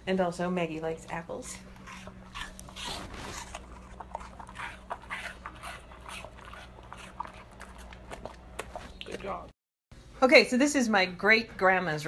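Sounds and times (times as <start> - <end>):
dog crunching apple: 1.4 - 9.5.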